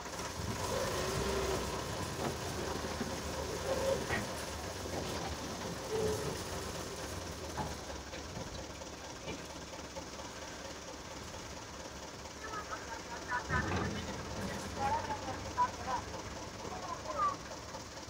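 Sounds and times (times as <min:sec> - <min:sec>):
tractor diesel engine running: 0:00.0 - 0:18.0.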